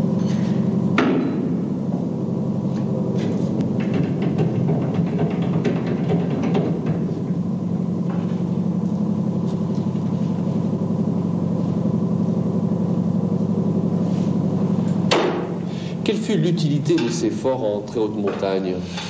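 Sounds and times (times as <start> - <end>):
machinery droning with flutter: 0.0 - 19.0
sharp knock: 15.1 - 15.5.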